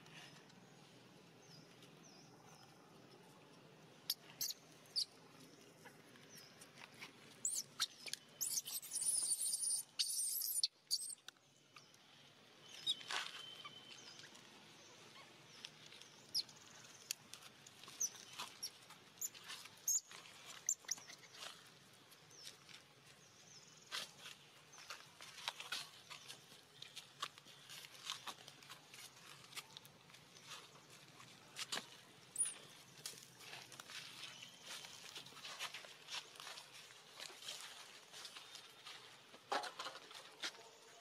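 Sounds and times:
rustling on dry leaves: 0:23.8 - 0:40.9.

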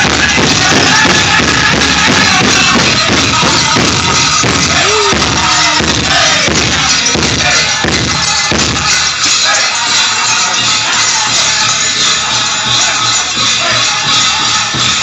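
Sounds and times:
large hand drum beating: 0:00.0 - 0:09.0
singers' voices: 0:00.0 - 0:15.0.

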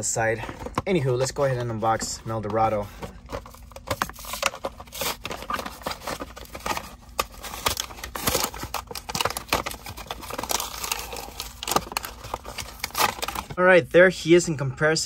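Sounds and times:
blister pack tearing and crinkling: 0:03.3 - 0:13.6.

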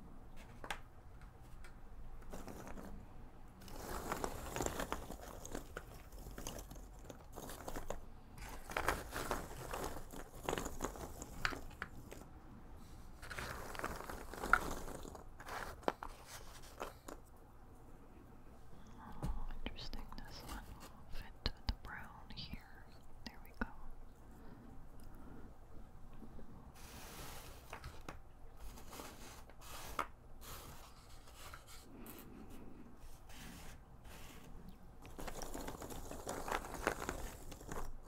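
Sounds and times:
puzzle pieces rattling in a box: 0:03.6 - 0:12.3, 0:13.2 - 0:17.2, 0:35.1 - 0:38.0.

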